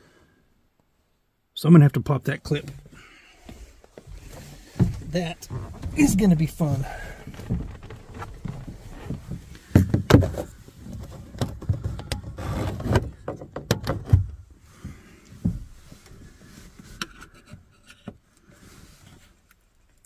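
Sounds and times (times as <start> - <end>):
plastic trim knocking and rustling: 4.0 - 14.4.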